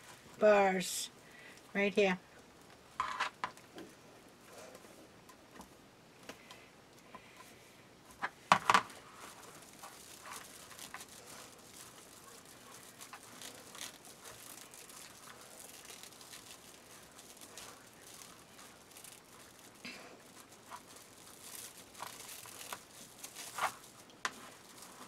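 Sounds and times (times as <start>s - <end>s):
plastic mesh rustling and crinkling: 7.2s - 25.0s.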